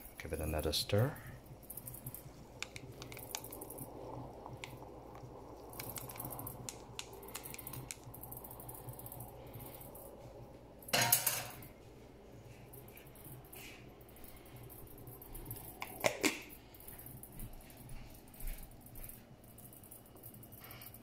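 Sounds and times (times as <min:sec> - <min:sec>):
paddle stirring coffee: 0:00.0 - 0:11.7.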